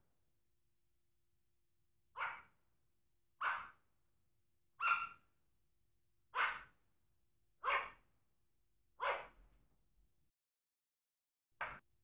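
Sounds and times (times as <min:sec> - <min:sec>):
dog barking: 0:02.1 - 0:02.6, 0:03.4 - 0:03.8, 0:04.8 - 0:05.2, 0:06.3 - 0:06.8, 0:07.6 - 0:08.0, 0:09.0 - 0:09.4.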